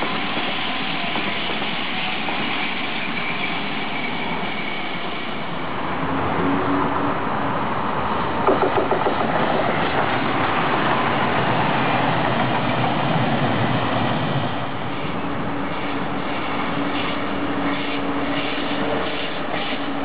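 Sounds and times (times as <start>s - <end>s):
diesel train passing: 0.0s - 20.0s
wheels clicking over rail joints: 8.4s - 10.6s.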